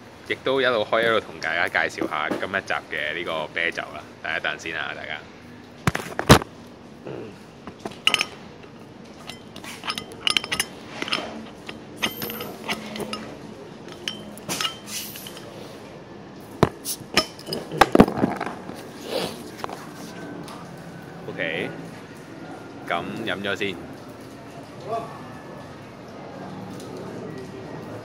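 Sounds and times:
metal tool prying bottle cap: 7.7s - 15.5s, 16.6s - 18.5s.

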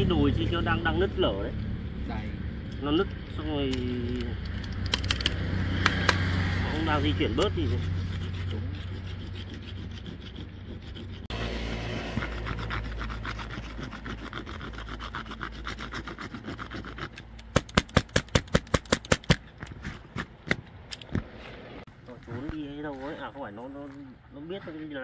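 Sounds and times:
rasping scraping strokes: 3.3s - 18.3s.

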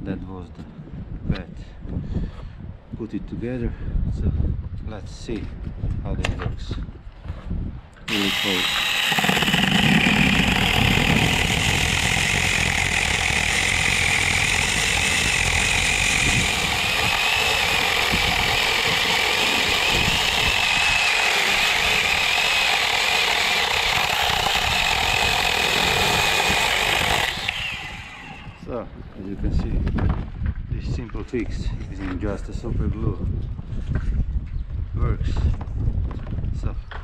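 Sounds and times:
electric chainsaw cutting log: 8.1s - 28.7s.

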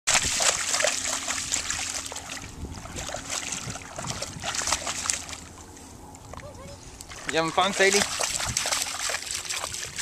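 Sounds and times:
dog splashing through water: 0.1s - 5.6s, 7.1s - 10.0s.

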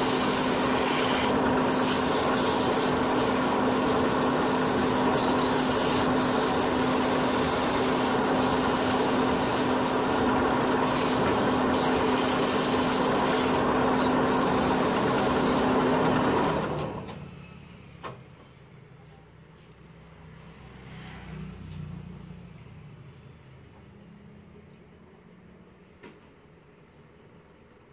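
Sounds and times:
sandpaper rubbing spinning wood: 0.0s - 15.9s
lathe humming: 0.0s - 16.9s.

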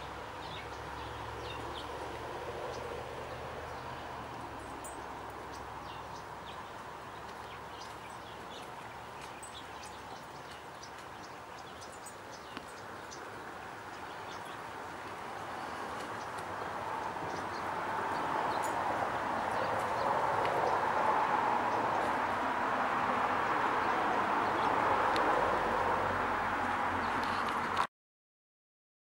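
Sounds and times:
small birds chirping: 0.0s - 22.4s.

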